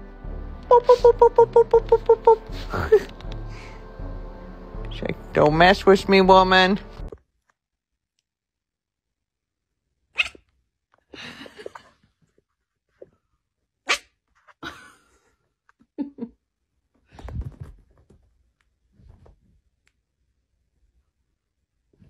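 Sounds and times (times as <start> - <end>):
kitten yipping: 10.1 - 10.5.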